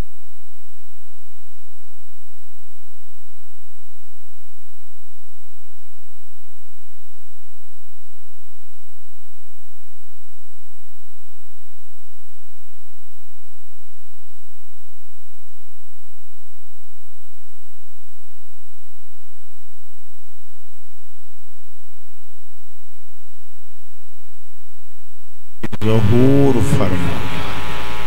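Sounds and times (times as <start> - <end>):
electrical hum and hiss: 0.0 - 28.0
thin high whine: 23.1 - 28.0.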